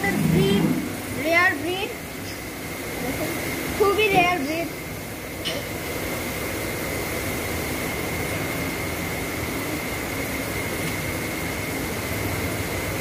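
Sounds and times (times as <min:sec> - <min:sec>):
high-pitched whine: 0:00.0 - 0:03.2
machine drone: 0:00.0 - 0:04.0.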